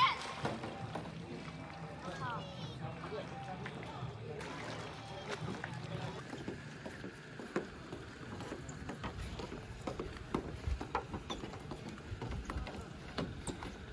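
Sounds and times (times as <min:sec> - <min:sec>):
footsteps on wooden boards: 0:06.2 - 0:13.9.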